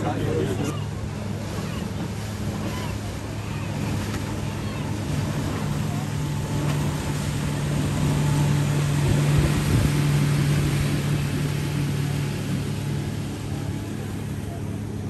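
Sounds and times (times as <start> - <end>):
motorboat hum: 0.0 - 15.0
water noise: 0.0 - 15.0
wind noise: 6.7 - 12.1.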